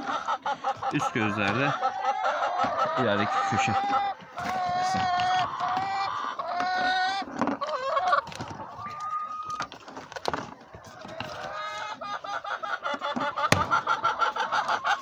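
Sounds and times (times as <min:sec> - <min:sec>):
chickens calling: 0:00.0 - 0:15.0
sharp knocks: 0:13.5 - 0:13.8.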